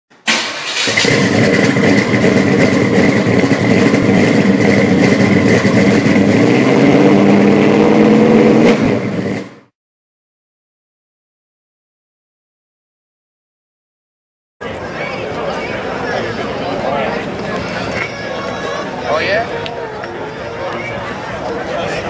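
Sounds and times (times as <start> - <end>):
car engine revving: 0.4 - 9.7.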